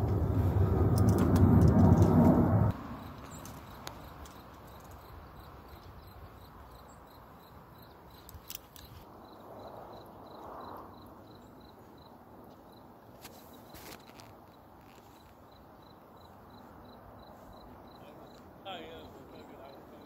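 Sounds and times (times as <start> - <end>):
wind and water rumble: 0.0 - 4.5.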